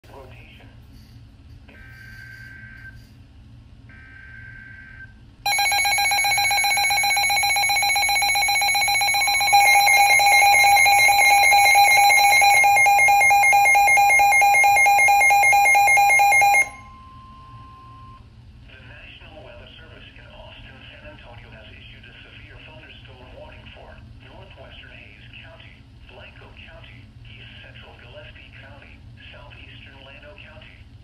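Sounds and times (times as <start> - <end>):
rapidly pulsing electronic beep: 3.9 - 18.2
digital alert header noise: 5.5 - 16.8.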